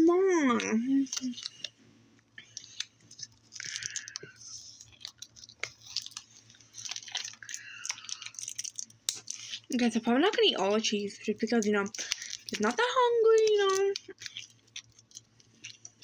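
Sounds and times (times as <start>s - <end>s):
person chewing: 2.4s - 9.7s, 13.6s - 16.0s.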